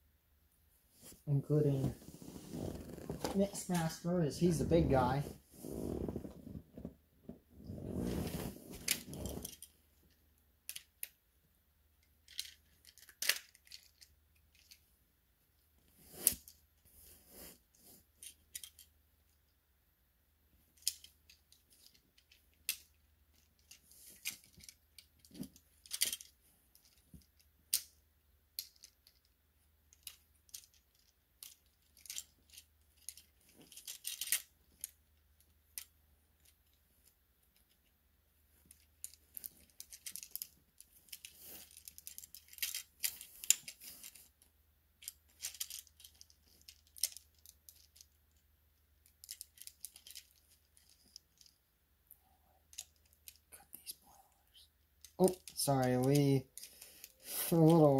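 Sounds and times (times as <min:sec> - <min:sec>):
plastic toy parts clicking: 0:12.2 - 0:14.8, 0:20.8 - 0:28.0, 0:28.6 - 0:29.3, 0:29.9 - 0:35.0, 0:38.7 - 0:40.5, 0:41.1 - 0:44.2, 0:45.0 - 0:48.4, 0:49.0 - 0:51.5, 0:52.7 - 0:54.0.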